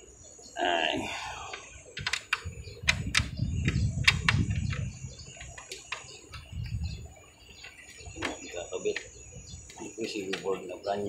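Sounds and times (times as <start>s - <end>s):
sharp plastic clicks and knocks: 2.0s - 6.5s, 9.7s - 10.6s.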